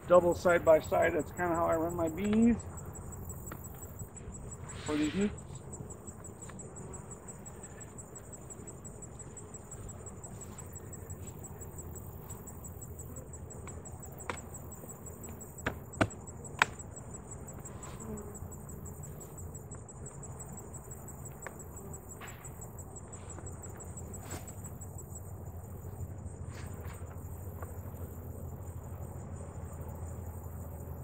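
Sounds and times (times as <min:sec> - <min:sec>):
insects chirring: 0:00.0 - 0:31.0
wooden boxes knocking: 0:15.6 - 0:16.7.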